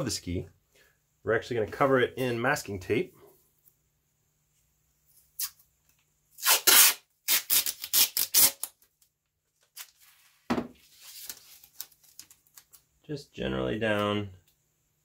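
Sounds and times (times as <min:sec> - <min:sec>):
tape rustling: 0:05.4 - 0:12.9
masking tape pulled off roll: 0:06.4 - 0:08.8.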